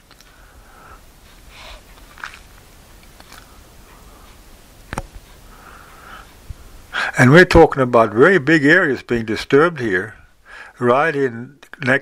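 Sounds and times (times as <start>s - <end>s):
faint steady hiss: 0.0s - 12.0s
soft breaths: 0.1s - 7.2s, 10.1s - 10.8s.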